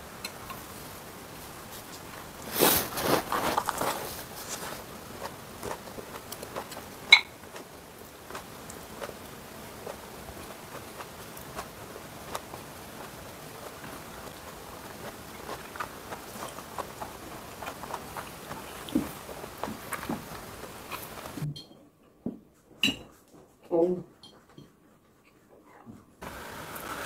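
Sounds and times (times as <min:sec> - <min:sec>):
chewing and mouth noises: 0:01.7 - 0:21.5.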